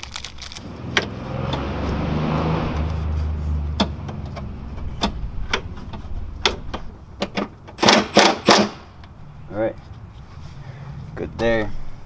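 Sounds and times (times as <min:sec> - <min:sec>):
car passing: 0:00.0 - 0:07.2
sharp clicks of clamps: 0:06.4 - 0:08.8.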